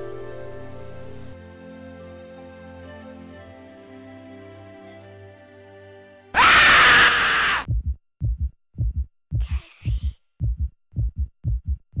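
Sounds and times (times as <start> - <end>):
loud scream: 6.4 - 7.7
heartbeat thumps: 7.6 - 12.0.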